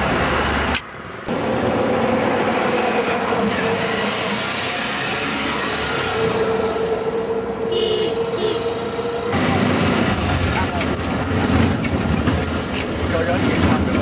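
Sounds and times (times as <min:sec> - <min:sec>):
vehicle engine and road noise: 0:00.0 - 0:14.0.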